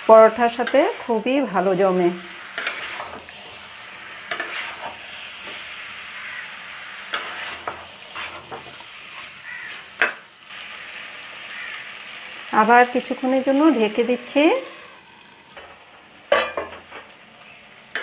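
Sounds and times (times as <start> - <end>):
masala sizzling in metal pan: 0.0 - 18.0
metal spatula scraping and knocking pan: 2.5 - 3.6, 4.2 - 5.7, 7.0 - 10.3, 15.6 - 17.1.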